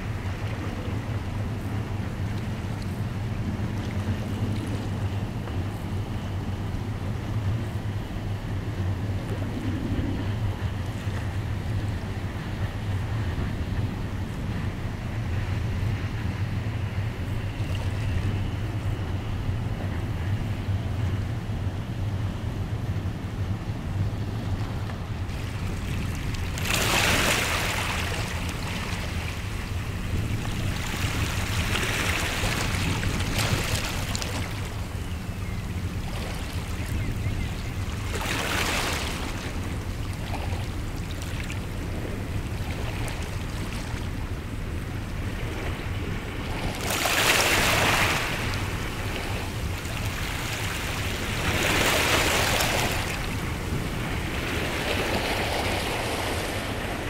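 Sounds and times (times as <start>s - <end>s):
low drone of ship engines: 0.0s - 57.0s
waves washing onto shore: 24.7s - 57.0s.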